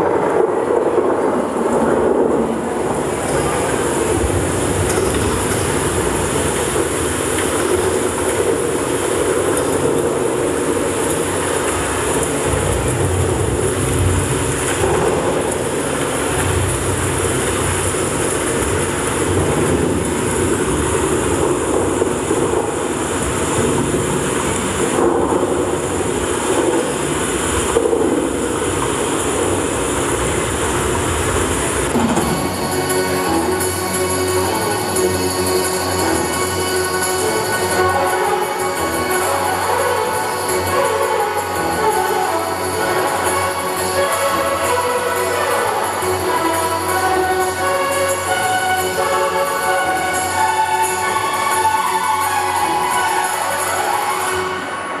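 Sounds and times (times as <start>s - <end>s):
loud rumbling playback track: 0.0s - 55.0s.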